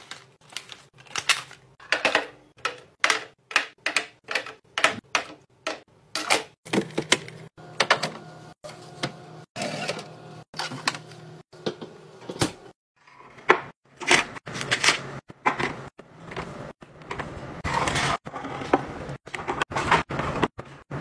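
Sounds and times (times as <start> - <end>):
packaging rustling: 0.0 - 1.8.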